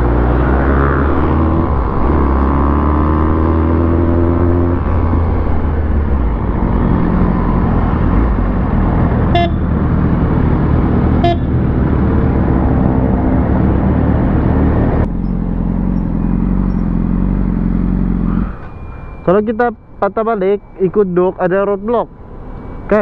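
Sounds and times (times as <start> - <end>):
horn beeps: 9.3 - 9.7, 11.2 - 11.6, 18.2 - 23.0
motorcycle engine running: 15.0 - 18.6.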